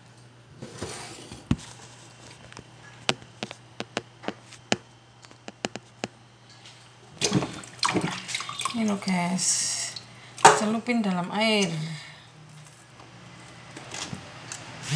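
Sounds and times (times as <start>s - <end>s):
hands tapping and clicking objects: 2.6s - 6.2s.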